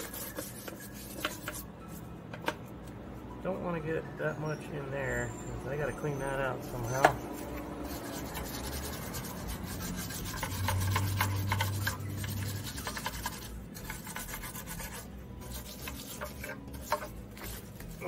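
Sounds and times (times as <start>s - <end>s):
stiff brush scrubbing: 0.0s - 2.0s, 6.4s - 18.0s.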